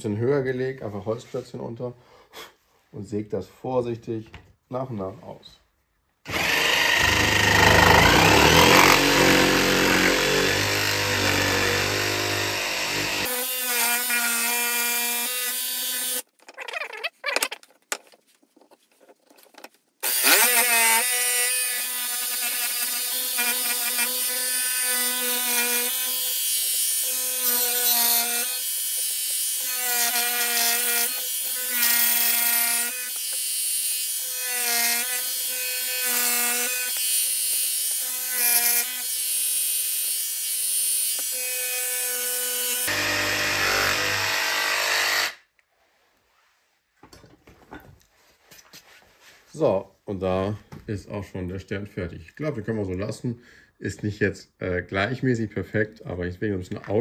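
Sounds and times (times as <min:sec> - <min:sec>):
jigsaw cutting wood: 0:06.2 - 0:16.3, 0:20.0 - 0:45.4.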